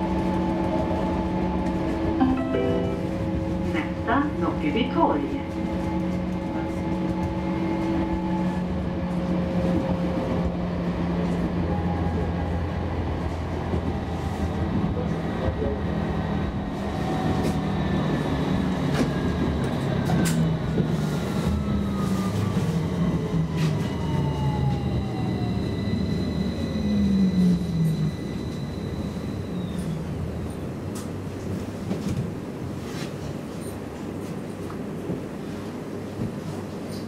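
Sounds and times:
tram drive hum: 0.0 - 37.0.

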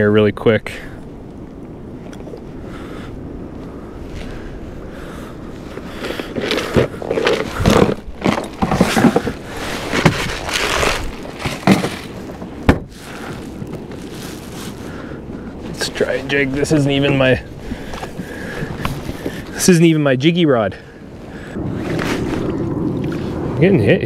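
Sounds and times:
fishing gear knocking and rattling: 5.8 - 14.1.

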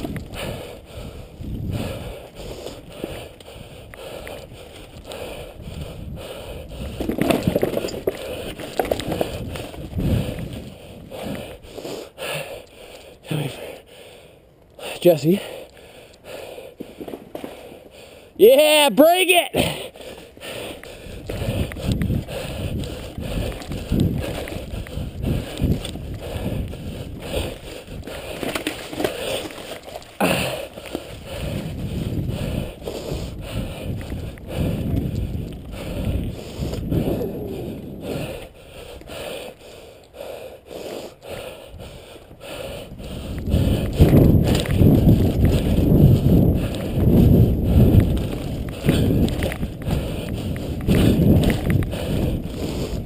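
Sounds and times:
bike tyres rumbling: 0.0 - 13.2, 19.7 - 40.5, 41.2 - 53.0
knocks and rattles on planks: 7.0 - 9.4.

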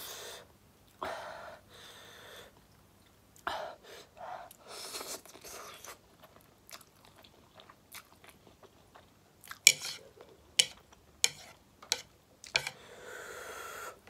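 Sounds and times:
person chewing: 4.8 - 12.8
breathy inhaled hiss: 12.8 - 14.0.

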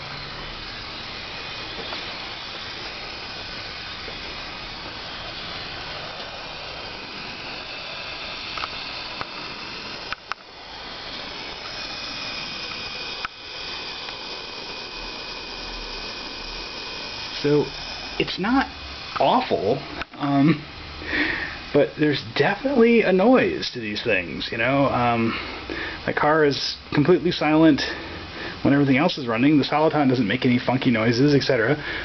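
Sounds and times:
power converters hissing: 0.0 - 32.0.

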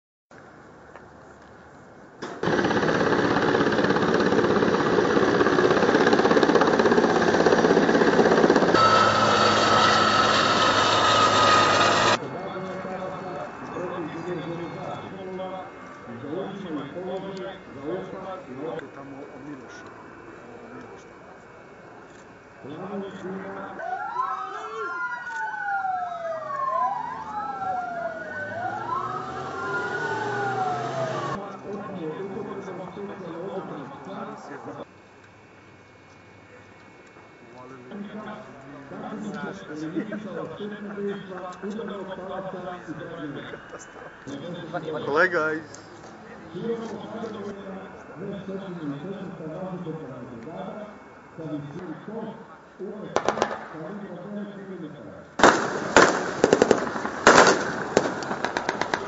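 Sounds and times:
helicopter rotor chop: 2.3 - 19.8, 25.4 - 34.9, 55.4 - 59.0
helicopter turbine noise: 2.3 - 53.2, 55.4 - 59.0
sirens wailing: 2.4 - 18.7, 23.1 - 34.8, 40.9 - 49.0.

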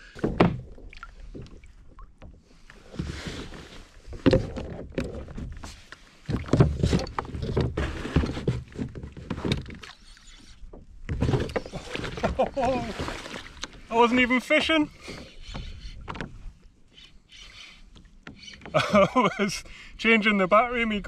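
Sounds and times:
knocks and bumps on kayak: 0.1 - 0.7, 4.1 - 9.9
water splashing: 9.7 - 15.7.

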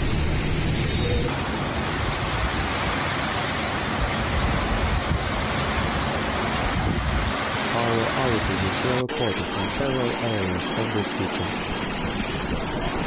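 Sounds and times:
strong wind: 0.0 - 10.2, 11.4 - 13.0
heavy rain: 1.3 - 11.1
wind buffeting microphone: 4.0 - 7.4.

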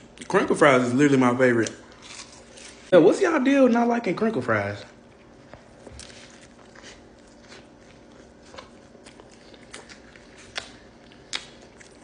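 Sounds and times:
person chewing food: 5.0 - 12.0.

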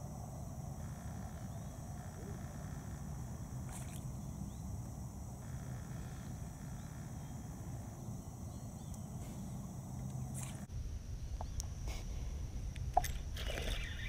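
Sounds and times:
steady low rumble: 6.3 - 13.4
faint bird chirps: 13.4 - 14.0.

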